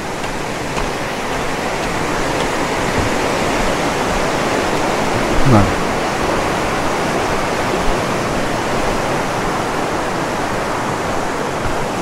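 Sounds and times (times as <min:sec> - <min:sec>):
stream water rushing: 0:00.0 - 0:12.0.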